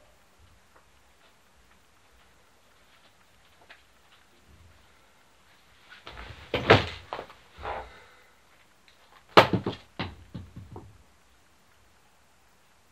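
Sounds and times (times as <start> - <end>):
knocks and thuds of person moving: 6.0 - 7.9, 9.2 - 11.0
plastic chair knocking: 9.4 - 11.0.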